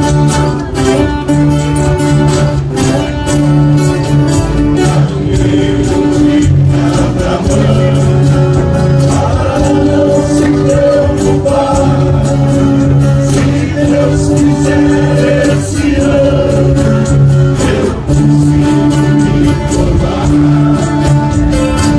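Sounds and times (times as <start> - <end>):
strummed guitars: 0.0 - 21.9
group of men singing: 4.3 - 21.9.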